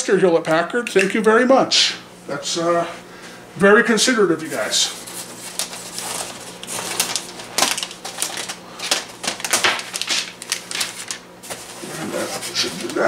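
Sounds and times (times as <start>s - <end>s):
polystyrene foam clicking and scraping: 5.0s - 13.0s.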